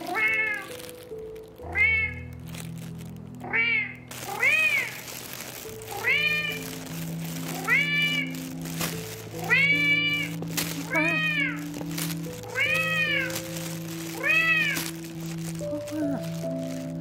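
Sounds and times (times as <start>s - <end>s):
cat meowing: 0.0s - 0.7s, 1.7s - 2.3s, 3.4s - 5.0s, 5.9s - 6.7s, 7.5s - 8.4s, 9.4s - 11.7s, 12.4s - 13.4s, 14.2s - 14.9s
background music with held notes: 0.0s - 17.0s.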